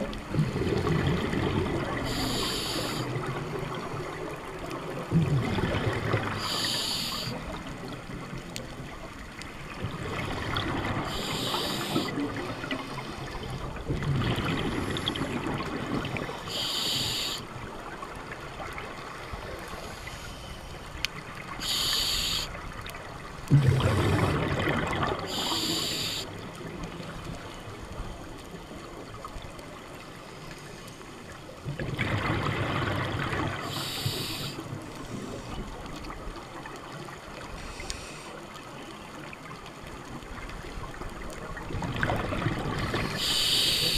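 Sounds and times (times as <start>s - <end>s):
exhaled air bubbling: 0.0s - 8.0s, 9.6s - 17.4s, 23.5s - 26.7s, 31.6s - 36.3s, 40.9s - 43.9s
regulator breath hiss: 2.0s - 3.1s, 6.4s - 7.5s, 11.1s - 12.2s, 16.4s - 17.5s, 21.6s - 22.6s, 25.3s - 26.4s, 33.6s - 35.6s, 37.6s - 38.4s, 43.0s - 43.9s.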